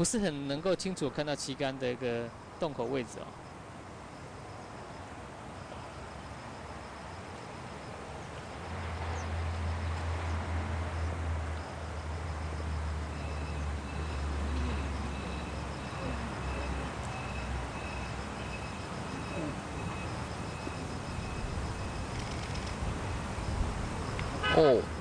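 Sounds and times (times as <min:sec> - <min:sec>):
faint high chirping: 0:13.1 - 0:22.6.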